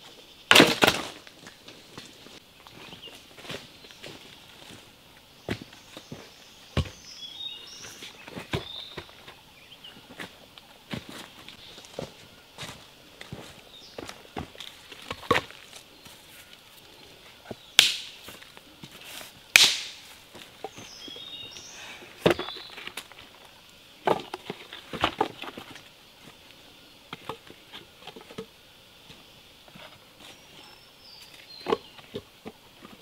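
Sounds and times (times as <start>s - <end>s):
insects buzzing: 0.0s - 33.0s
wooden branches knocking: 0.5s - 2.1s, 17.8s - 18.4s, 19.6s - 20.9s, 24.0s - 25.7s
bird chirping: 5.4s - 10.2s, 20.6s - 22.9s.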